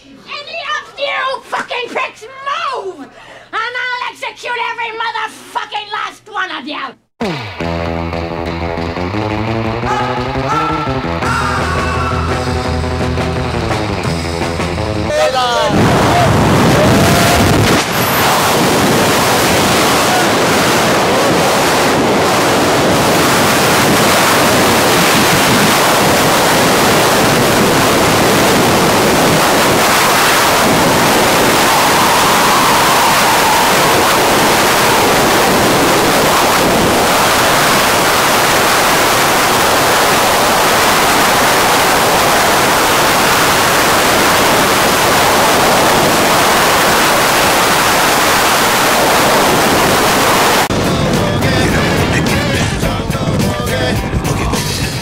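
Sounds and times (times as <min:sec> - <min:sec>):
wind blasting across microphone: 0:15.6 - 0:54.2.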